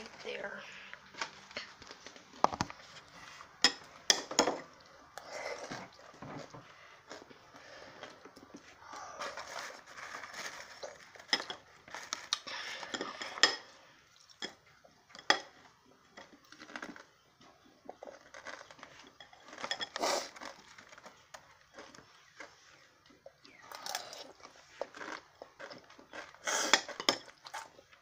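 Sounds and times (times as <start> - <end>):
mouth sounds of eating: 17.8 - 20.8, 21.8 - 27.9.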